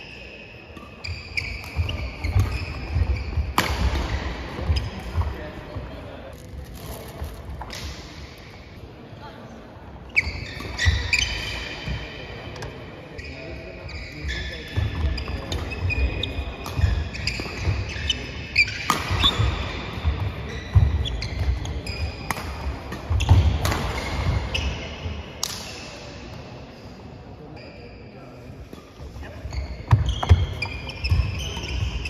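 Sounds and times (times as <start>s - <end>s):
shoe squeaks: 0.0s - 5.5s, 10.1s - 25.9s, 27.5s - 32.0s
racket striking shuttlecock: 0.7s - 5.2s, 18.7s - 20.0s, 22.2s - 24.3s.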